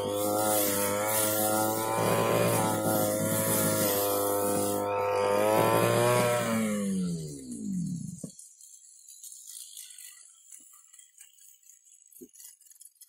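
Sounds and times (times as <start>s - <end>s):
brush cutter engine running: 0.0s - 8.7s.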